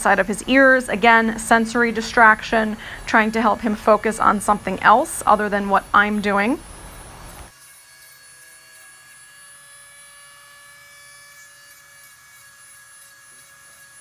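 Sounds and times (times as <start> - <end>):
rotary tool whining: 0.0 - 14.0.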